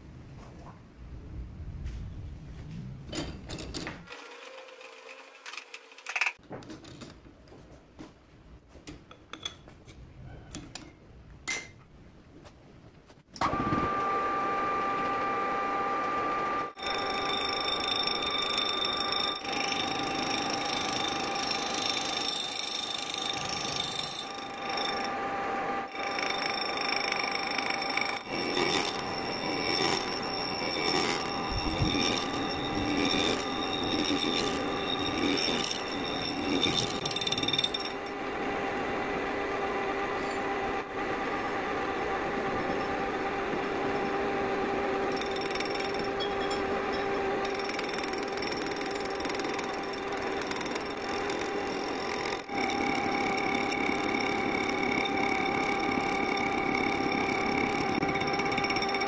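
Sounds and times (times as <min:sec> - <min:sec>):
metal lathe cutting whine: 0:13.9 - 0:59.0.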